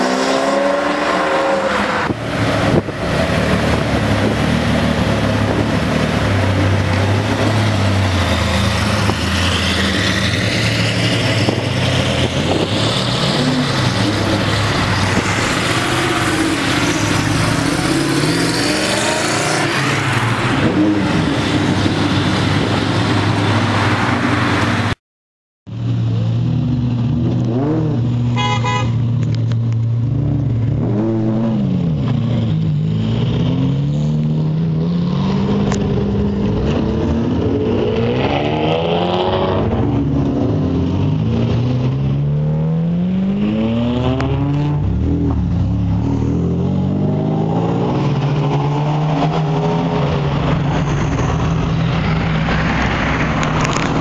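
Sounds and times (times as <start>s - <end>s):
sports car engines revving: 0.0s - 24.9s, 25.8s - 54.0s
car horn toot: 28.4s - 29.1s.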